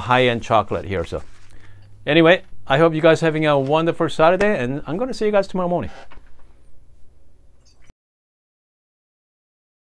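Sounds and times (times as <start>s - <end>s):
low steady hum: 0.0s - 7.9s.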